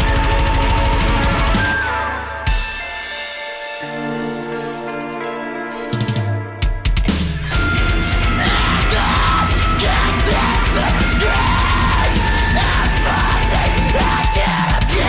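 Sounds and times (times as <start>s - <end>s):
metal band playing: 0.0s - 15.0s
lead vocals singing: 7.5s - 15.0s.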